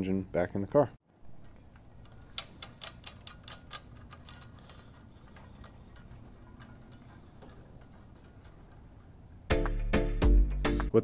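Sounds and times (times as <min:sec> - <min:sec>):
steel chain links clinking: 0:01.4 - 0:09.2.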